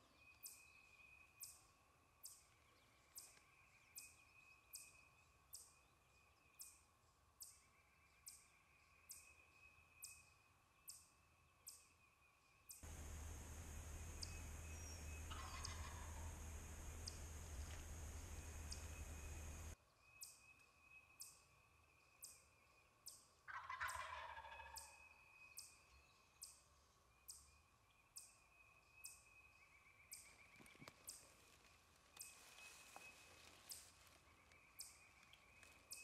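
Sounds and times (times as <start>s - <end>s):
turkey gobbling: 12.8s - 19.8s, 23.5s - 25.0s.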